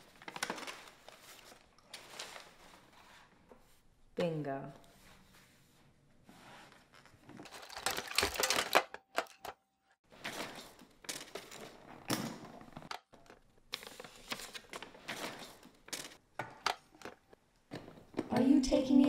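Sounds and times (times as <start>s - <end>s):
paper rustling and sliding: 0.1s - 3.8s, 13.8s - 16.2s.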